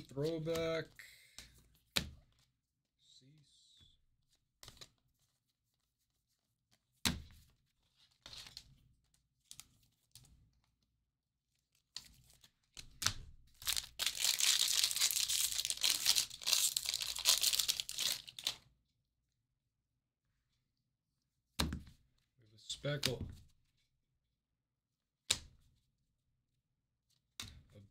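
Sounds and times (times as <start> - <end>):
wrapper tearing and crinkling: 13.6 - 18.6.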